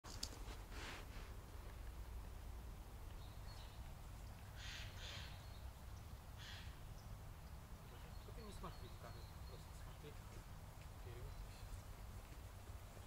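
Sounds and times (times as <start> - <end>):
faint bird chirp: 3.1 - 12.0.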